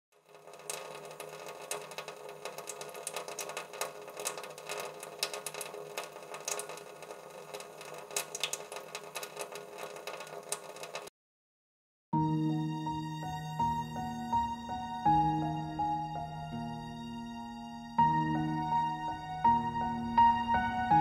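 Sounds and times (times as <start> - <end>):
water running from tap into sink: 0.2 - 11.1.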